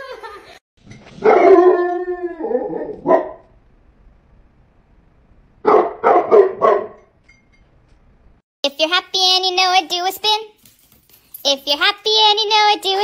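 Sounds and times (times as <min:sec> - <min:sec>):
dog barking: 0:01.2 - 0:01.8, 0:03.0 - 0:03.4, 0:05.6 - 0:07.1.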